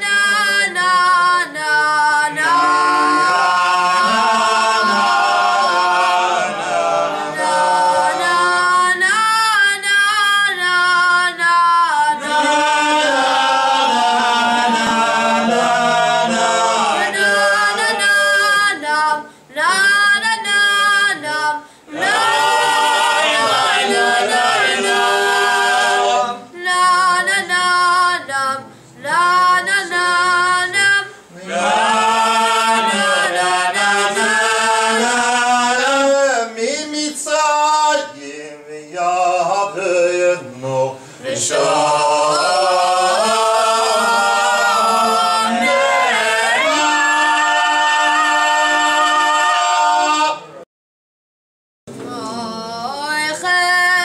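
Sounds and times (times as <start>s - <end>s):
cantor chanting prayers: 0.0s - 21.6s, 29.1s - 47.4s.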